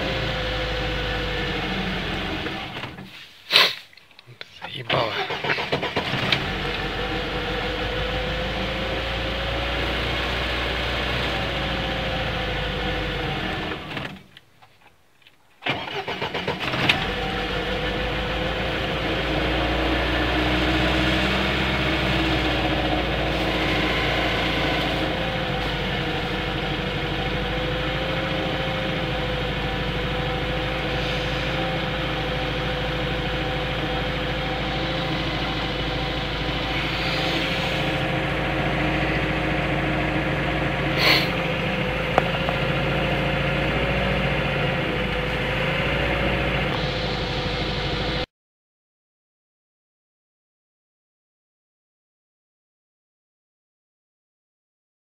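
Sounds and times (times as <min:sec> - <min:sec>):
car engine idling fast: 0:15.7 - 0:48.2.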